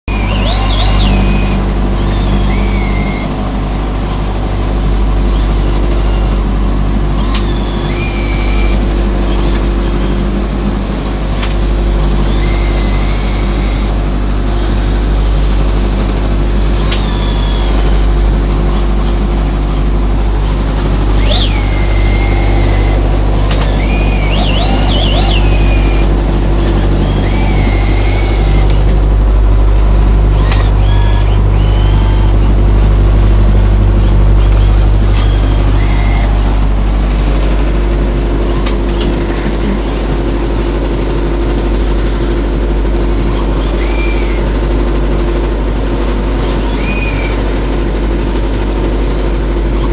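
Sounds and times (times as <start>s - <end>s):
motorboat engine droning: 0.0s - 49.9s
high-pitched squeaks: 0.1s - 3.4s, 7.1s - 9.6s, 21.1s - 29.0s, 30.4s - 32.5s, 34.0s - 36.4s, 43.2s - 44.4s.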